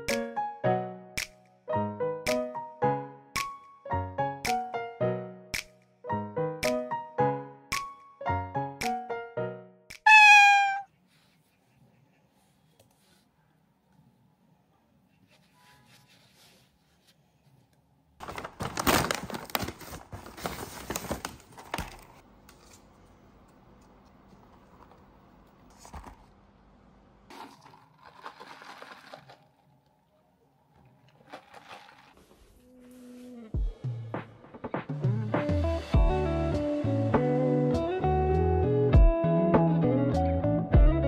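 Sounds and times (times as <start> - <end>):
packaging crinkling and tearing: 18.2 - 22.7, 27.3 - 29.7, 31.2 - 32.2.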